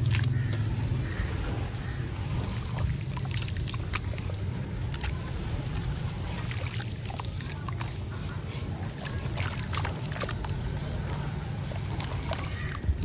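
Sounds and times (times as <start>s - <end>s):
hands sloshing wet slurry: 0.0s - 13.0s.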